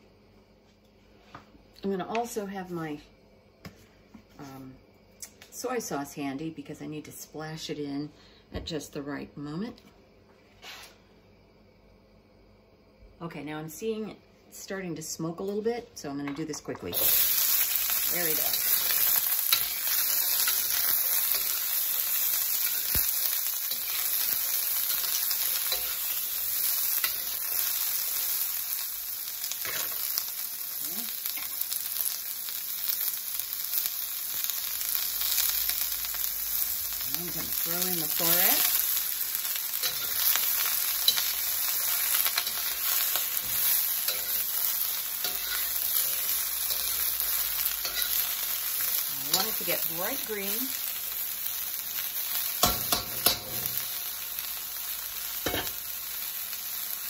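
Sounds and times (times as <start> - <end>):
vegetables sizzling in a wok: 0.0 - 57.0
metal utensil scraping a pan: 23.6 - 26.3, 39.8 - 44.6, 45.2 - 47.1, 47.8 - 48.4.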